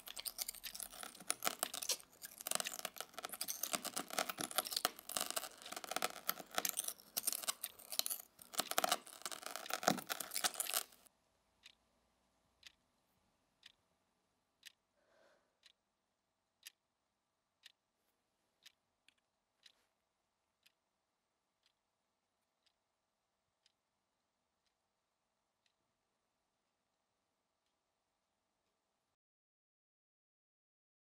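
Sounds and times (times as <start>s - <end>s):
dense crackling crunching noise: 0.0s - 11.1s
clock ticking: 0.0s - 11.8s, 12.6s - 12.8s, 13.6s - 13.8s, 14.6s - 14.8s, 15.6s - 15.8s, 16.6s - 16.8s, 17.6s - 17.8s, 18.6s - 19.8s, 20.6s - 20.8s, 21.6s - 21.8s.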